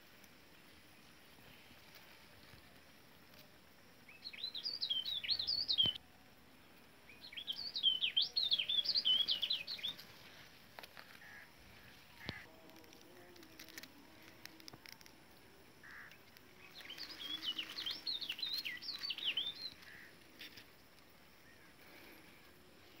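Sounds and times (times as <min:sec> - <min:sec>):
faint outdoor background noise: 0:00.0 - 0:23.0
small bird twittering: 0:04.1 - 0:06.0, 0:15.8 - 0:20.1.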